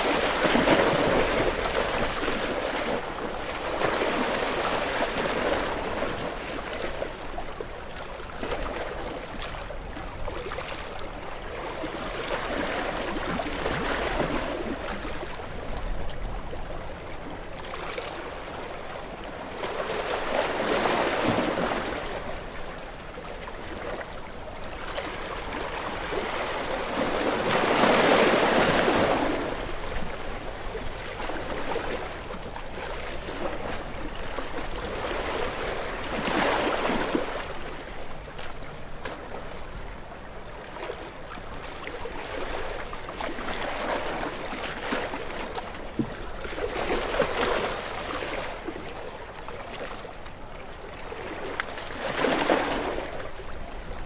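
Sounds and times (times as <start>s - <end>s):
sea waves washing onto shore: 0.0s - 7.4s.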